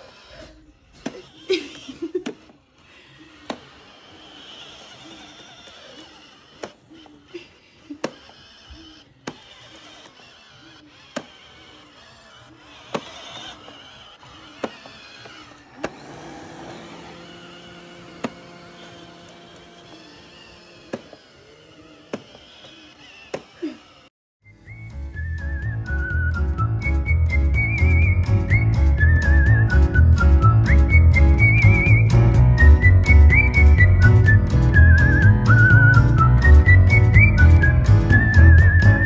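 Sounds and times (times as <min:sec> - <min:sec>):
robot vacuum whirring: 0:00.0 - 0:39.0.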